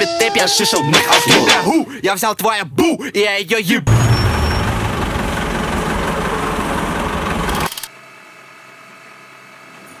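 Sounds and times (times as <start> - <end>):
bus engine idling: 3.9 - 7.7
street noise: 3.9 - 7.8.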